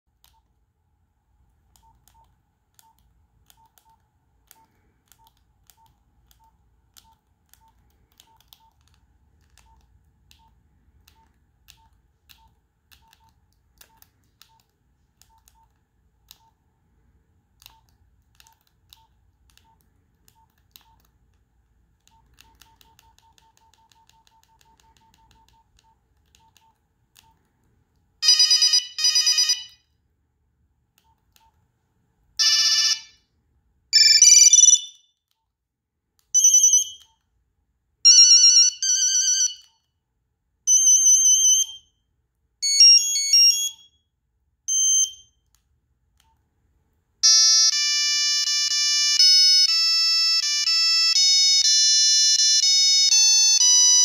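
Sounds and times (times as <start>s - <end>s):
monophonic ringtone snippets: 34.0s - 35.0s
phone keypad beeps: 34.0s - 35.1s, 36.4s - 37.2s, 42.6s - 43.9s, 44.7s - 45.3s.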